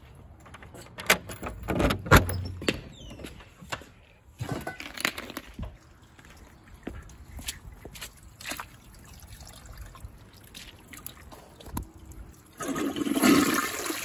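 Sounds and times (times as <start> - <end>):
footsteps: 2.6 - 8.7.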